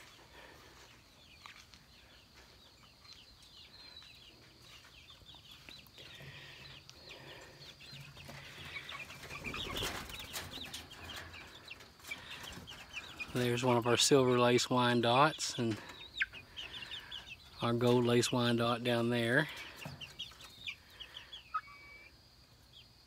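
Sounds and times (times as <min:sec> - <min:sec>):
chicks peeping: 0:00.0 - 0:23.0.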